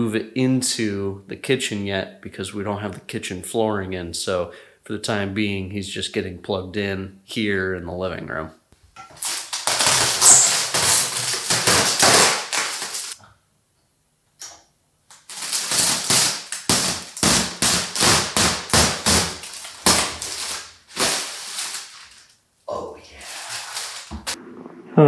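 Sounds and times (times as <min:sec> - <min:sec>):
plastic film crinkling and crackling: 0:09.1 - 0:13.2, 0:15.1 - 0:22.4, 0:23.2 - 0:24.4.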